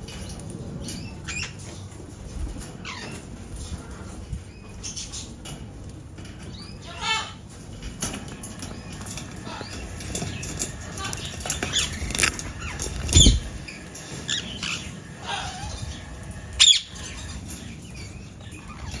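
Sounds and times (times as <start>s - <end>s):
parakeet squawks: 6.8s - 7.4s, 9.4s - 13.5s, 14.3s - 17.4s.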